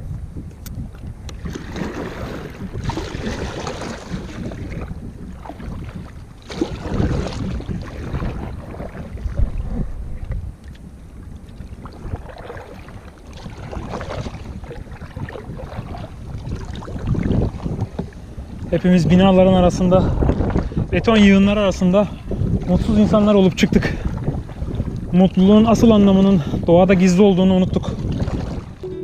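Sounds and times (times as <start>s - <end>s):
wind on microphone: 0.0s - 29.0s
paddle splashing in water: 1.3s - 18.7s, 22.3s - 25.1s, 27.9s - 29.0s.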